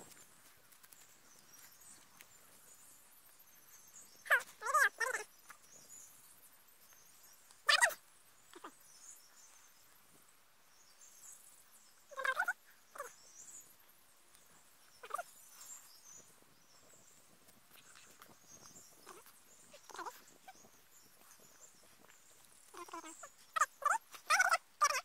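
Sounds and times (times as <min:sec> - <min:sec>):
short pitched animal calls: 0:22.7 - 0:25.0.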